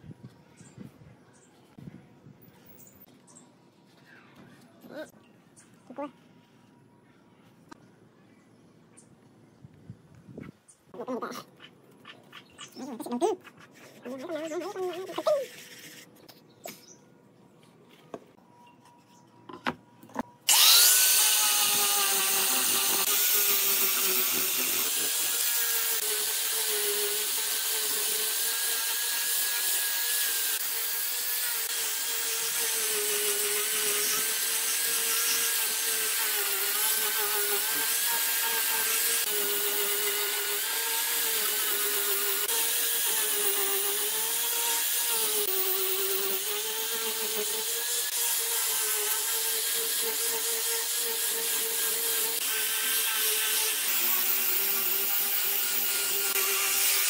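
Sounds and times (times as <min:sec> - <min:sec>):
angle grinder sanding wood: 0:20.5 - 0:57.0.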